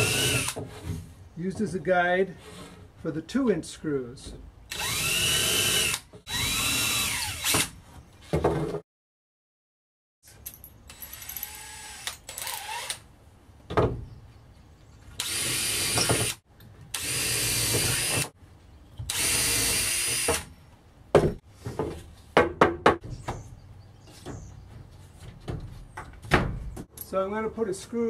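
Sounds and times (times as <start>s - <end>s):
cordless drill driving into wood: 0.0s - 0.6s, 4.7s - 7.8s, 10.9s - 13.0s, 15.2s - 18.3s, 19.1s - 20.5s.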